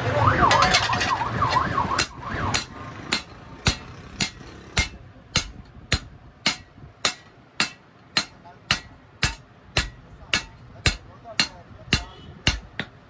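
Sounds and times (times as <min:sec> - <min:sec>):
wailing siren: 0:00.0 - 0:02.7
hammer striking chisel on metal: 0:02.0 - 0:13.0.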